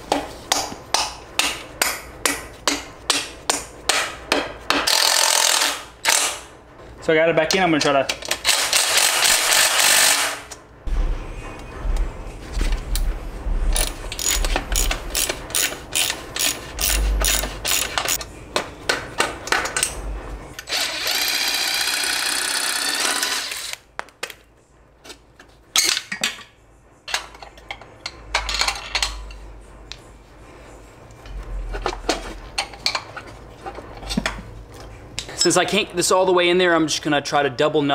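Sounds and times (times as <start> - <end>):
ratchet wrench clicking: 4.9 - 6.3, 13.8 - 18.2
cordless drill running: 20.7 - 23.8.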